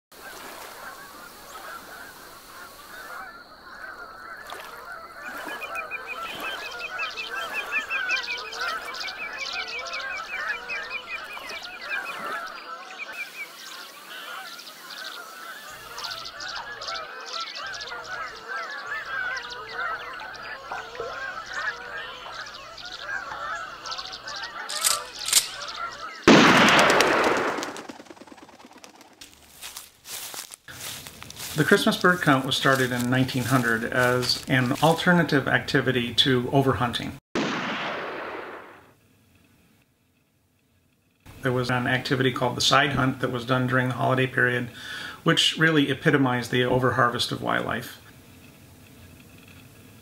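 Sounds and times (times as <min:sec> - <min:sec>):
waterfowl flock calling: 0:00.1 - 0:36.9, 0:41.3 - 0:50.0
high bird trill: 0:00.8 - 0:34.9.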